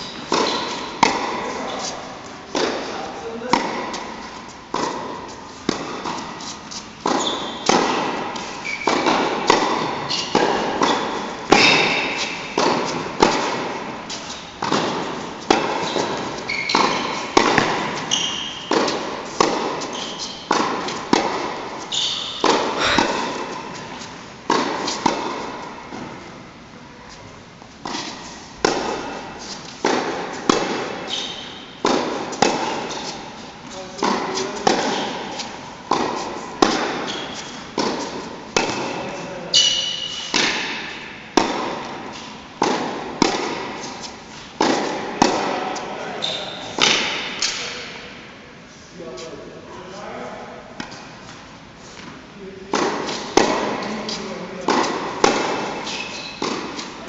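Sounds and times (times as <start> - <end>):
tennis ball bouncing on court: 0.0 - 1.9, 2.5 - 26.2, 27.8 - 33.2, 34.0 - 45.8, 46.4 - 47.6, 52.0 - 57.0
shoes squeaking on court: 0.0 - 3.0, 3.9 - 24.2, 30.7 - 40.4, 45.3 - 47.0, 53.0 - 57.0
racket hitting tennis ball: 0.0 - 26.4, 27.8 - 48.0, 52.0 - 57.0.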